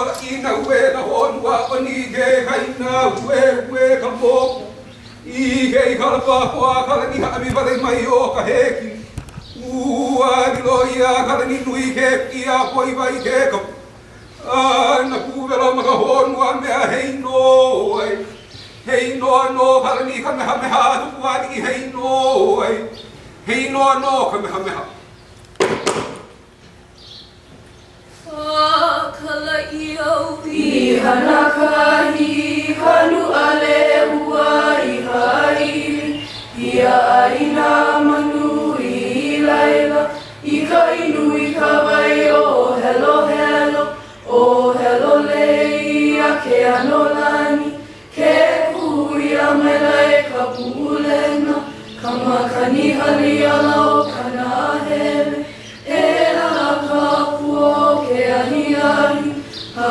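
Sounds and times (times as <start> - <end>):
group singing a cappella: 0.0 - 9.0, 9.6 - 13.8, 14.4 - 22.9, 28.3 - 59.9
single knock: 25.6 - 26.3.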